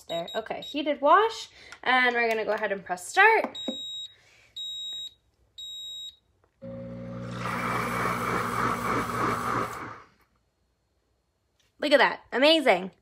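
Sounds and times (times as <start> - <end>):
blender beep: 3.6 - 10.1
blender motor churning water: 6.6 - 10.1.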